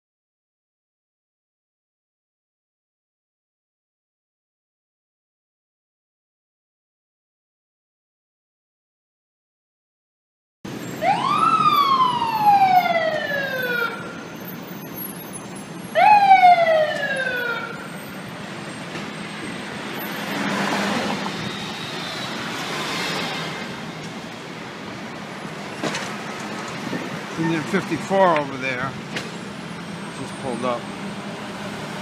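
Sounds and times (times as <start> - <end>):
city traffic noise: 10.6 - 32.0
fire engine siren wailing: 10.7 - 24.6.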